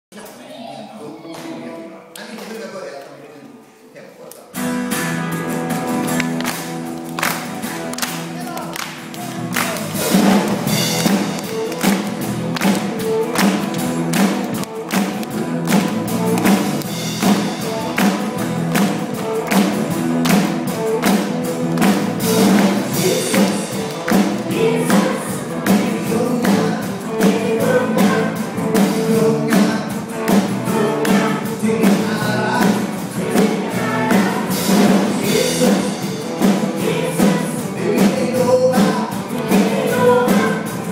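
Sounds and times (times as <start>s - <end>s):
live band playing: 4.5s - 40.9s
drums beating: 4.6s - 40.9s
people singing: 22.4s - 40.9s.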